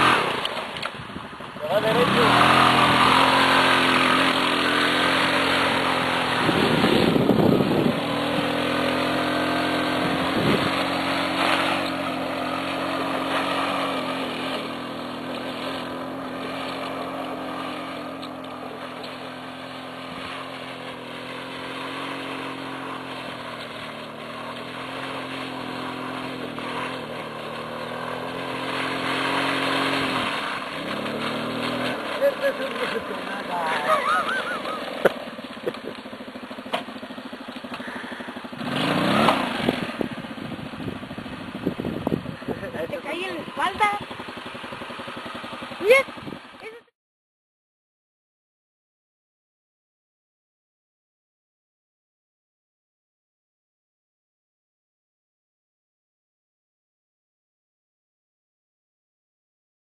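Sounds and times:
buggy engine running: 0.0 - 46.9.

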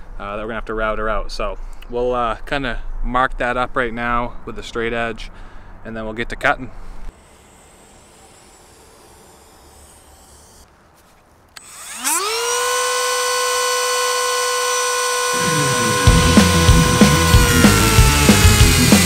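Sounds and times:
rotary tool grinding pipe: 7.1 - 10.7, 11.6 - 19.0
rotary tool motor whine: 7.1 - 10.7, 11.6 - 19.0.

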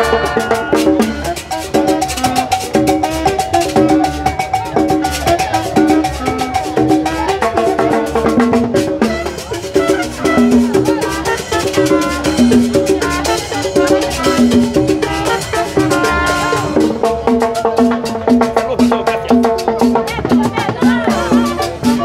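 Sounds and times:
saxophone: 0.0 - 18.1, 20.1 - 22.0
bass: 0.0 - 22.0
drums and percussion: 0.0 - 22.0
live band playing latin dance music: 0.0 - 22.0.

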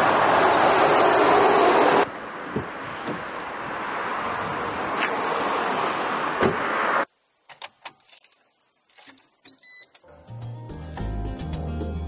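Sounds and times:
car road and wind noise: 0.0 - 7.1.

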